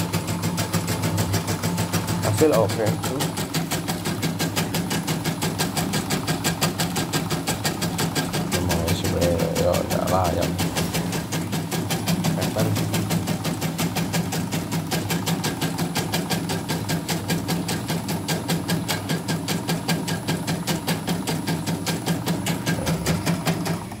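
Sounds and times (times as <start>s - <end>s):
motor humming: 0.0s - 24.0s.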